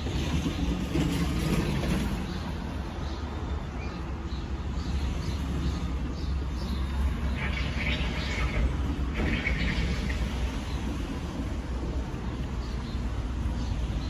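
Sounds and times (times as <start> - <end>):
small birds chirping: 1.6 - 11.0
distant jet airliner rumble: 5.0 - 13.4.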